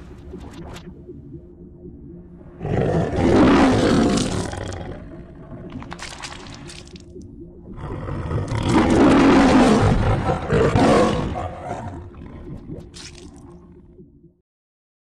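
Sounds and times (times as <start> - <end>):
low steady hum: 0.0 - 14.4
lion roar: 2.6 - 5.7, 7.7 - 12.4.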